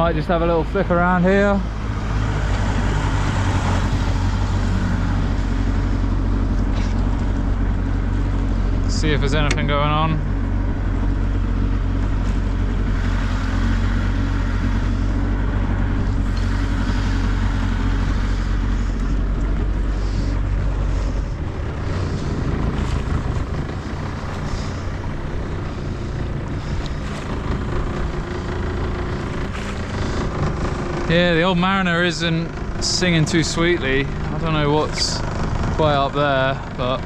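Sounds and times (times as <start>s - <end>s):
outboard motor droning: 0.0s - 37.0s.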